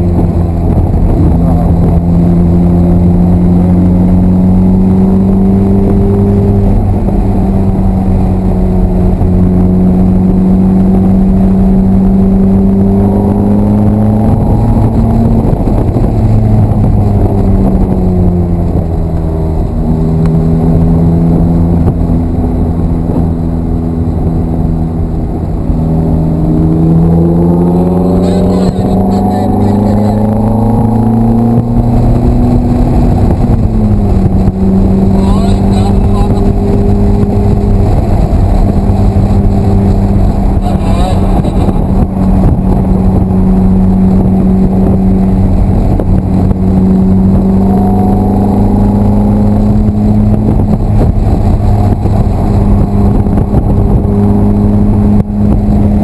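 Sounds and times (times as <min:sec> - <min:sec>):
car engine running hard: 0:00.0 - 0:56.0.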